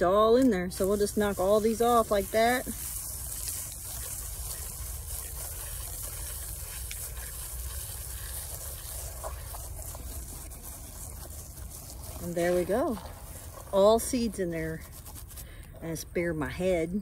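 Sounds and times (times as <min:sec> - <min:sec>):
hand rubbing sunflower head: 0:00.0 - 0:16.2.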